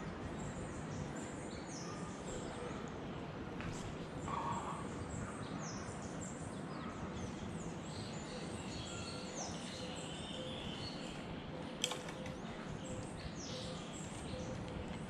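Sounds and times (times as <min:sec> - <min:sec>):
birds chirping: 0:00.0 - 0:15.0
sharp click: 0:11.8 - 0:13.1.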